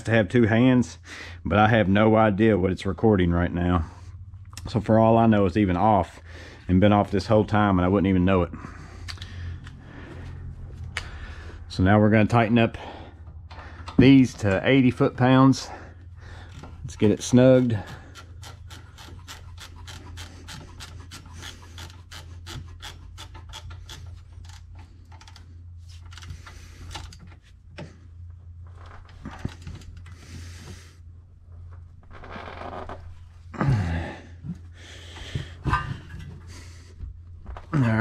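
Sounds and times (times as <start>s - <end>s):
steady low hum: 0.0s - 38.0s
hand ratchet clicking: 16.5s - 25.5s
tools scraping on metal: 16.9s - 24.8s.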